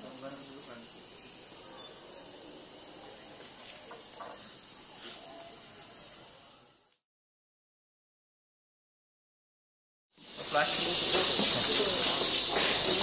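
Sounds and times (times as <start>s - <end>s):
insects droning: 0.0s - 7.1s, 10.2s - 13.0s.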